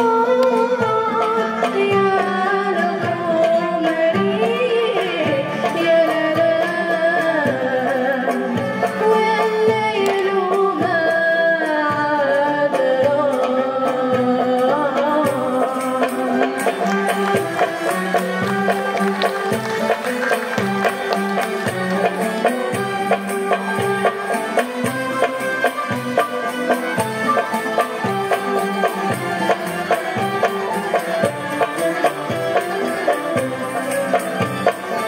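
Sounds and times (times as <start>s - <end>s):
string ensemble playing: 0.0s - 11.3s, 14.5s - 35.0s
hand percussion beat: 14.2s - 35.0s.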